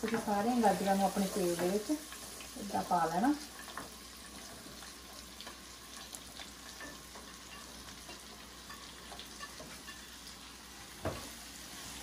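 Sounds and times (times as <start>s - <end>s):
carrots sizzling in oil: 0.0s - 12.0s.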